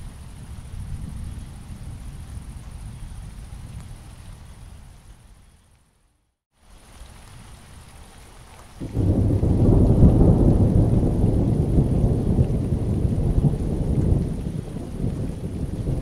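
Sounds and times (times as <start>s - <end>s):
rain falling: 0.0s - 5.3s, 6.6s - 16.0s
thunder rumbling: 8.8s - 16.0s.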